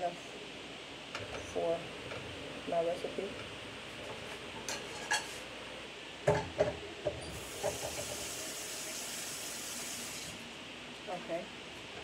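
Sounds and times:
steady high hiss: 7.2 - 12.0.

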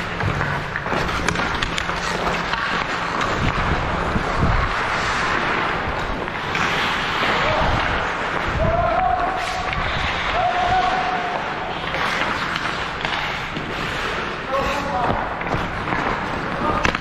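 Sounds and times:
game being played on an ice rink: 0.0 - 17.0
wind noise on microphone: 3.4 - 5.3.

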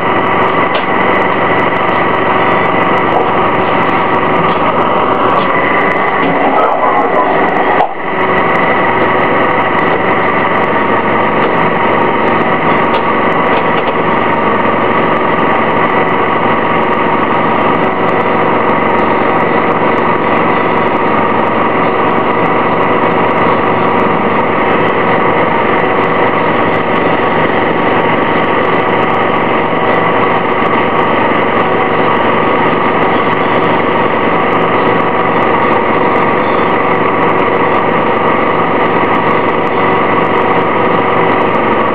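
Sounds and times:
bus engine running steadily: 0.0 - 41.9.

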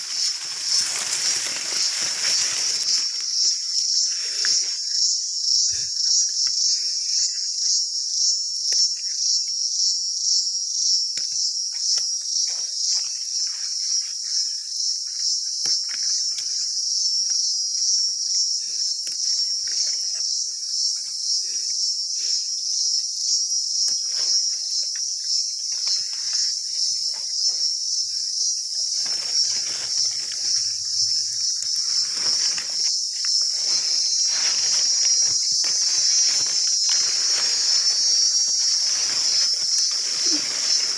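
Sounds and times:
leaves rustling and snapping: 0.0 - 3.7, 15.6 - 16.5, 28.8 - 40.9
insects buzzing: 0.0 - 40.9.

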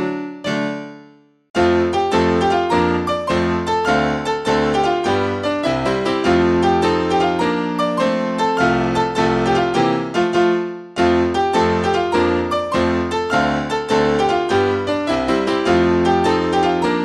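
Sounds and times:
piano accompaniment: 0.0 - 17.0.

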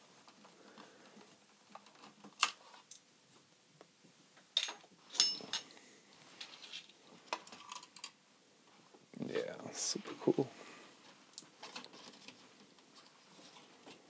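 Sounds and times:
metallic clink: 4.6 - 5.7.

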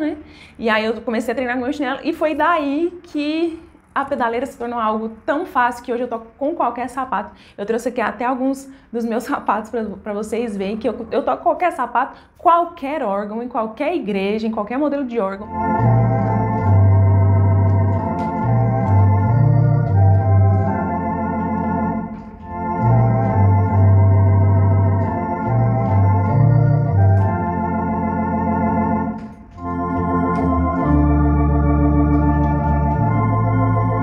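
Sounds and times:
electronic organ playing a hymn: 15.4 - 34.0.

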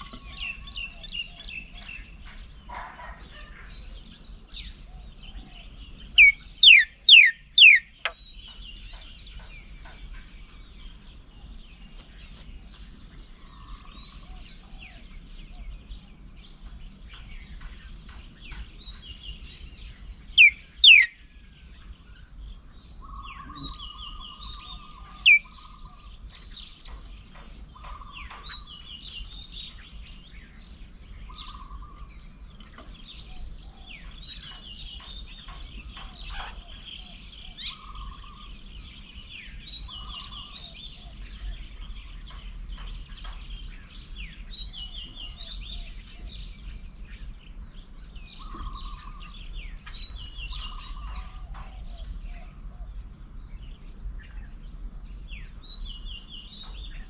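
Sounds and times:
insect drone: 0.0 - 57.0
high bird chirps: 6.0 - 9.7, 20.4 - 21.2
pulsed bird call: 6.1 - 8.2, 20.4 - 21.2.

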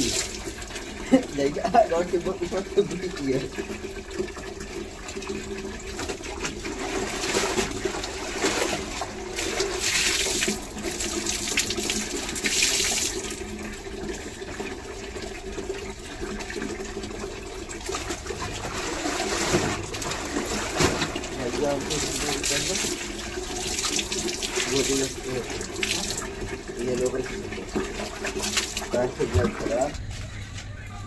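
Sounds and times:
water splashes: 0.0 - 14.5, 15.2 - 30.0
tap water pouring into tub: 0.0 - 30.0
wet clothes sloshing: 6.1 - 12.5, 17.8 - 26.4.

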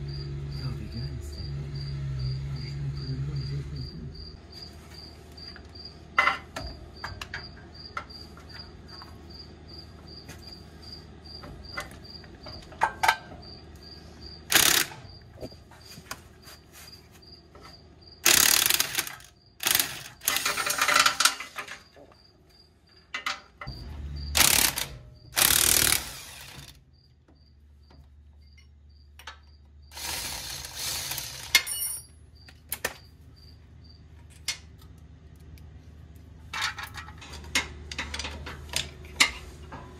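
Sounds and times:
crickets chirping: 0.0 - 34.6
impact driver running: 14.5 - 15.0, 18.2 - 20.8, 24.3 - 26.8, 29.9 - 31.6
metallic clicks of bolts and tools: 18.2 - 21.8, 36.5 - 39.4.

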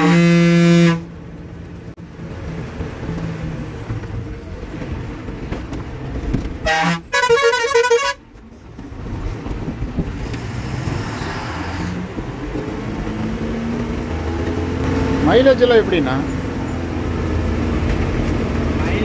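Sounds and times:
bus horn toot and warbling blast: 0.0 - 1.2, 6.6 - 8.2
diesel engine running: 11.8 - 19.0.

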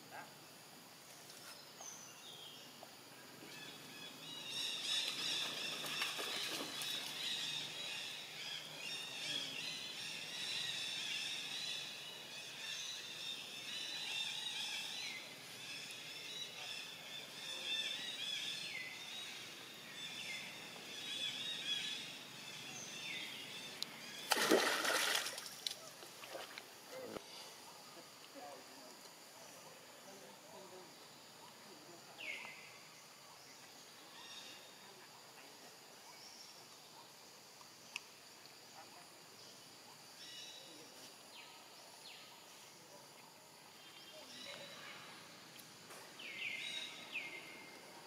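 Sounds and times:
small birds chirping: 40.2 - 48.0.

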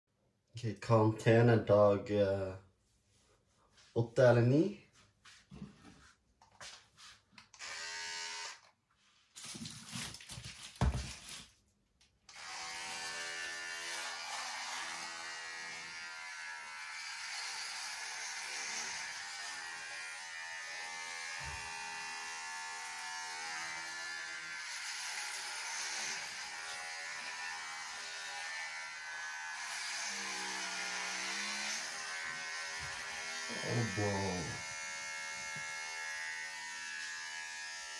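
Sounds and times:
electric hair clippers buzzing: 7.5 - 8.8, 12.3 - 37.9.

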